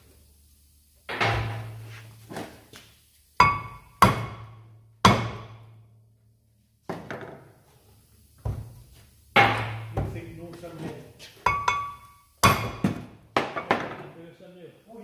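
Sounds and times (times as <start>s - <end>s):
hammer ringing on metal: 11.5s - 12.9s.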